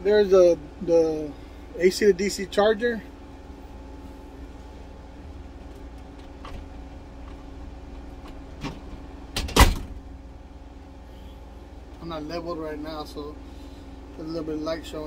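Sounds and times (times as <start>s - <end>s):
steady low hum: 0.0s - 15.0s
cabinet door shutting: 9.4s - 10.0s.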